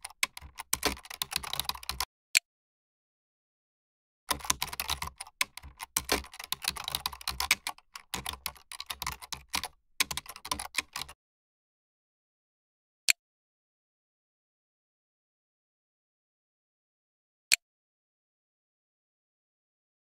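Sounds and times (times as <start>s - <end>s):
fast keyboard typing: 0.0s - 2.1s, 4.3s - 11.2s.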